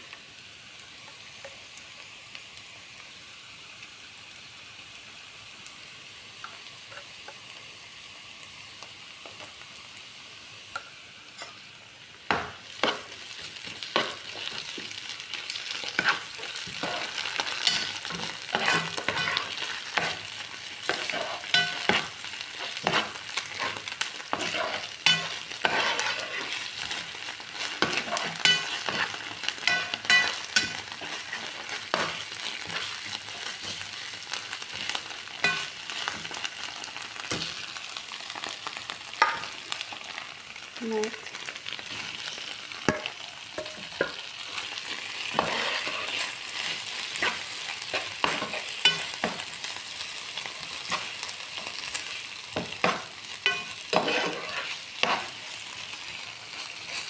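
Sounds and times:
onions sizzling in frying pan: 0.0 - 57.0
spoon scraping and knocking pan: 12.3 - 14.9, 15.5 - 33.9, 34.7 - 36.4, 39.2 - 39.6, 42.8 - 44.6, 45.2 - 49.5, 52.5 - 55.4.

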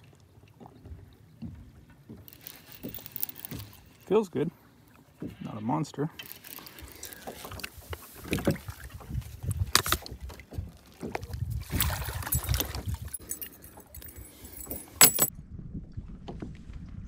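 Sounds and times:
wind on microphone: 7.5 - 13.3, 15.4 - 17.0
metallic jingle: 12.1 - 15.3.

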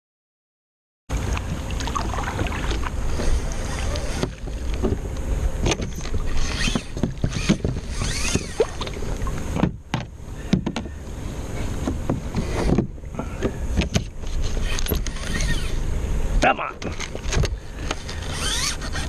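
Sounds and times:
paddle strokes splashing: 1.1 - 9.6
water slapping kayak hull: 1.1 - 15.9.

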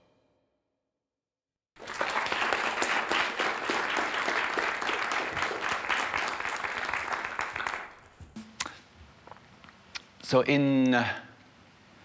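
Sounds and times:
audience applauding: 1.8 - 8.1.

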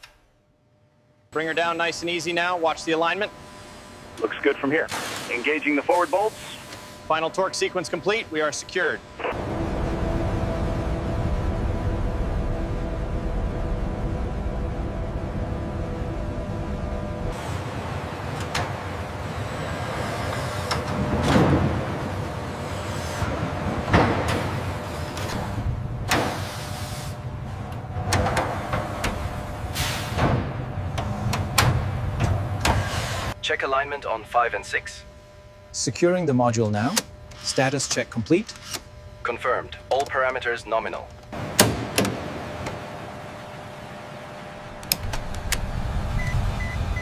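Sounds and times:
machinery low hum: 0.0 - 47.0
machinery hisses: 4.9 - 7.0, 26.2 - 27.2, 29.5 - 30.3
panel switches clicking: 44.8 - 45.7.

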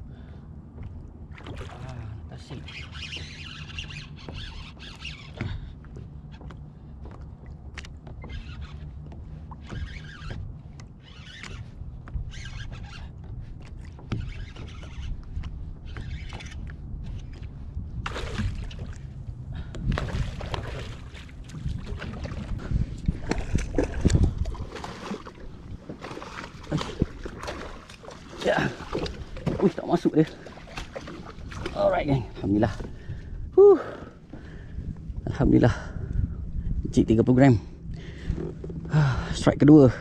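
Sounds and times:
water: 0.0 - 40.0
wind: 0.0 - 40.0.

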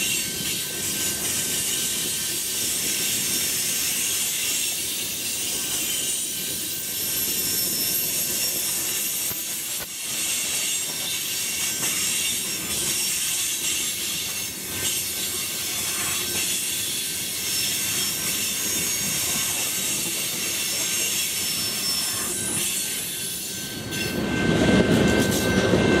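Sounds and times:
high thin wheel squeal: 0.0 - 25.7
train cars rumbling past: 0.0 - 26.0.

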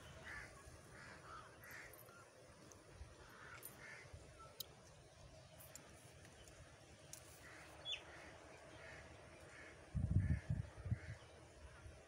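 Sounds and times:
crow cawing: 3.2 - 4.1.

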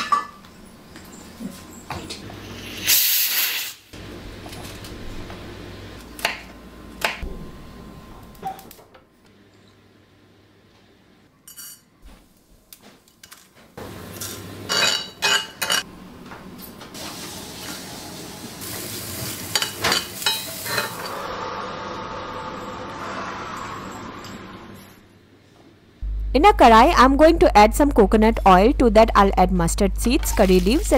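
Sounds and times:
spices sizzling lightly: 17.0 - 21.0.

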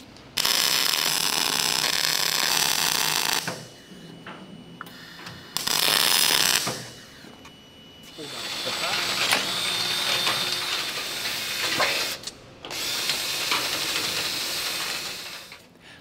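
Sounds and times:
welding arc: 0.3 - 3.7, 5.6 - 6.9, 8.1 - 15.6.

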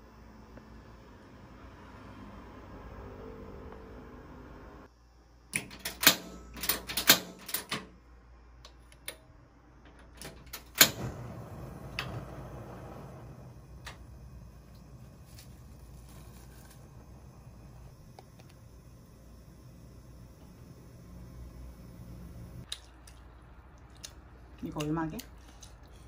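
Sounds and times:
gas stove igniter clicking: 5.5 - 7.9, 9.9 - 15.9, 16.7 - 22.7
gas flame hissing: 9.8 - 22.7.

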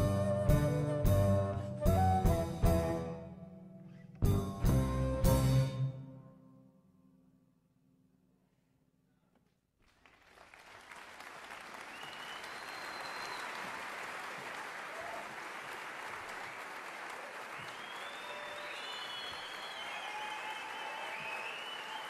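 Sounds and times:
audience applause: 9.8 - 22.0.

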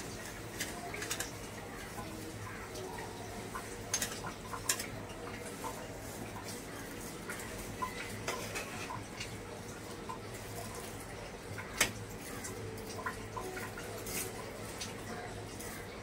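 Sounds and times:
metal spatula scraping a wok: 8.0 - 9.0.

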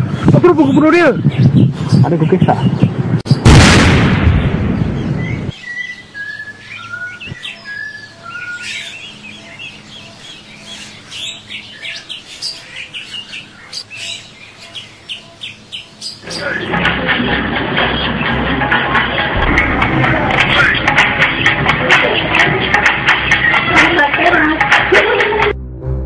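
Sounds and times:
birds chirping and whistling: 0.0 - 3.5, 4.4 - 16.7, 19.4 - 24.4
loud blast: 3.4 - 5.5, 18.2 - 23.6.

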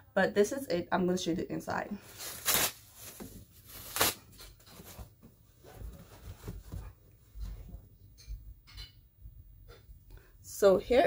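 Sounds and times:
bag and wrapping crinkling: 2.0 - 5.1.

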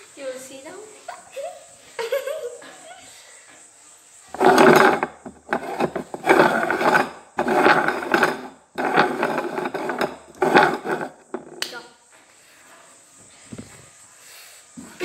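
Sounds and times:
bowls scraping across wooden table: 4.3 - 11.6.

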